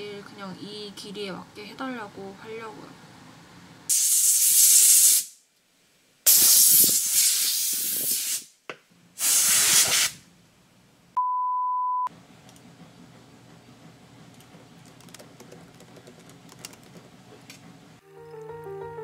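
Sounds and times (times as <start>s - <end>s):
compressed air spraying: 3.9s - 5.4s, 6.3s - 8.6s, 9.2s - 10.2s
steady beep tone: 11.2s - 12.1s.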